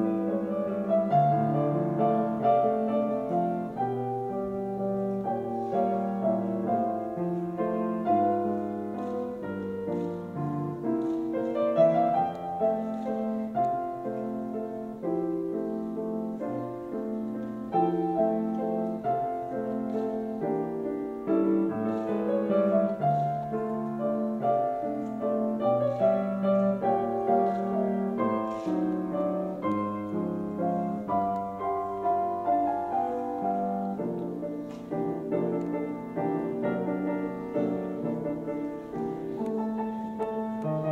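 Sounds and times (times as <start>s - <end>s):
piano melody: 0.0s - 40.9s.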